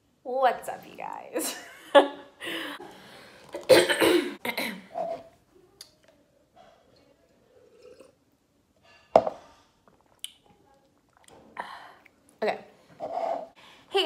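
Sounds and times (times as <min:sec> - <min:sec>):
cup knocking on surface: 0:09.2 - 0:09.4.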